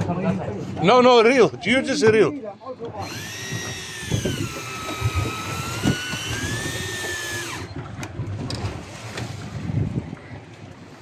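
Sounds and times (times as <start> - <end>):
water noise: 0.0 - 11.0
fishing reel whining: 3.0 - 7.8.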